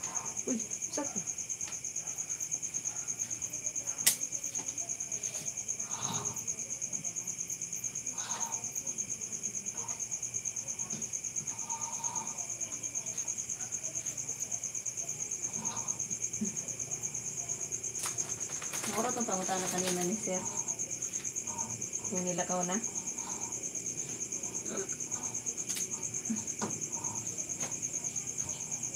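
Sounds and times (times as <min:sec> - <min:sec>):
crickets chirping: 0:00.0 - 0:28.9.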